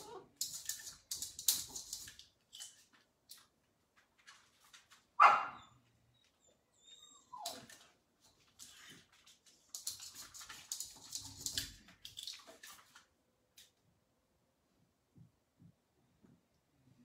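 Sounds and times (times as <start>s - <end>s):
dog barking: 5.2s - 5.8s
dog yelping: 5.2s - 5.8s.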